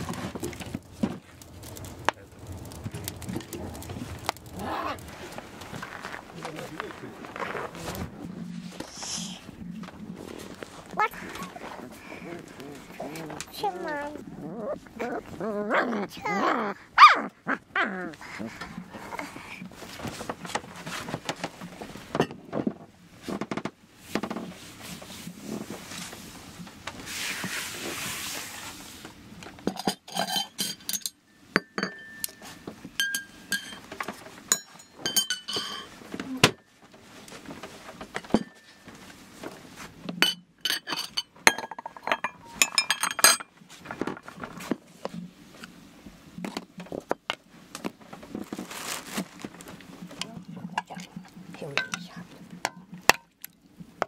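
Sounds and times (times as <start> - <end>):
dishes and glass jars clinking: 22.2 - 22.4, 29.6 - 33.9, 34.5 - 36.0, 38.2 - 38.8, 40.2 - 43.5, 51.7 - 53.3.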